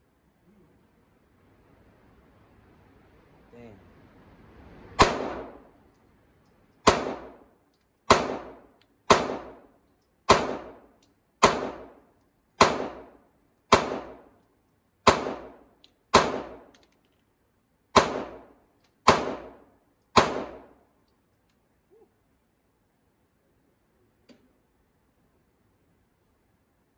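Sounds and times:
pistol shots echoing indoors: 5.0s - 5.9s, 6.8s - 14.4s, 15.0s - 16.9s, 17.9s - 21.0s.

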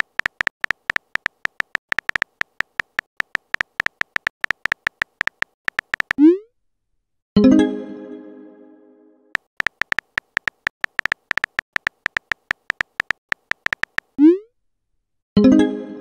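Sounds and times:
keyboard typing clicks: 0.0s - 6.3s, 9.4s - 14.2s.

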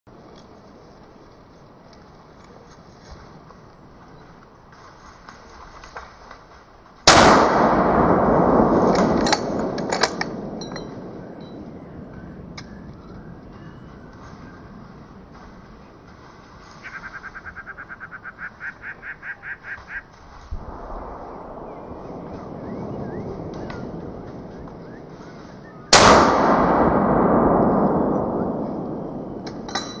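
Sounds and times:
rifle shot echoing: 7.1s - 15.4s, 20.6s - 30.0s.

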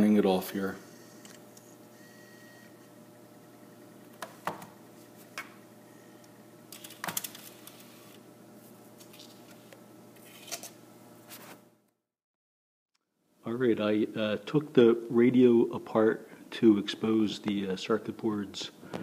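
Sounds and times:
steady low hum: 0.0s - 11.3s.

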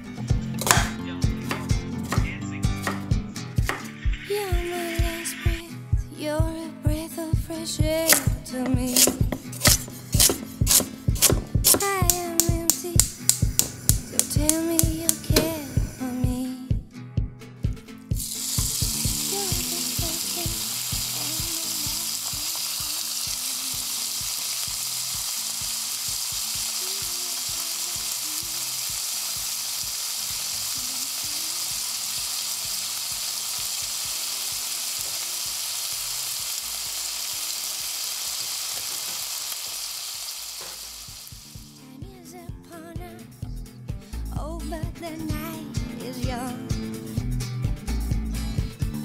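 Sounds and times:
food frying sizzle: 8.9s - 16.0s, 18.1s - 41.8s.

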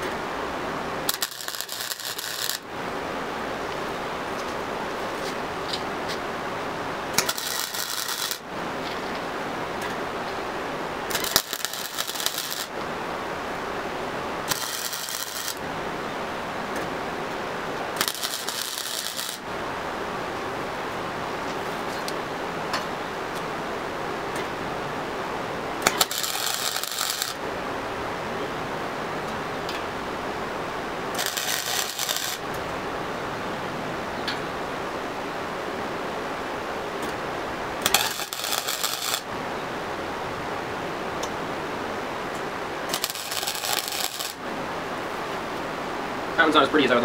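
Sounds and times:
steady hiss: 0.0s - 47.0s
welder arc crackling: 1.0s - 3.0s, 6.9s - 9.2s, 9.8s - 12.9s, 14.0s - 15.8s, 16.7s - 19.6s, 25.7s - 27.6s, 30.6s - 32.8s, 37.0s - 39.3s, 42.3s - 44.4s.

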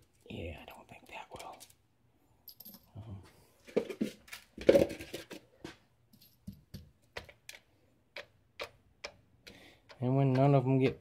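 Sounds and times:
small metal parts clinking: 2.4s - 3.0s.

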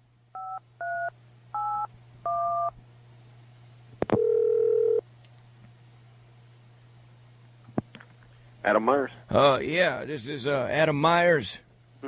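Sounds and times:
telephone line click: 4.0s - 5.0s
steady telephone tone: 4.1s - 5.0s.

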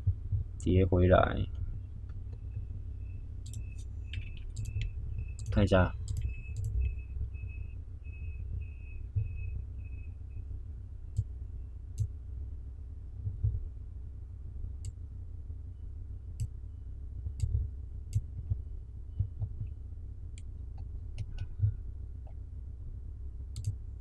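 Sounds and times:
steady low hum: 0.0s - 24.0s
computer mouse clicking: 3.4s - 6.9s, 23.6s - 23.8s.

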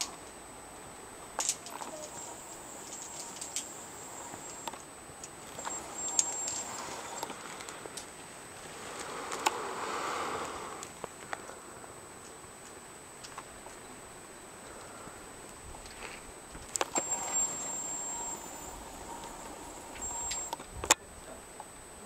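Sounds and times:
faint high hiss: 0.0s - 22.0s.

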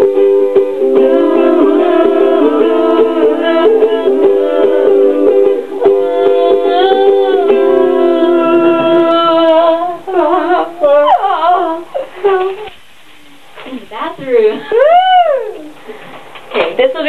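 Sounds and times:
ukulele strumming: 0.0s - 12.8s
voices singing in harmony: 0.8s - 12.8s.

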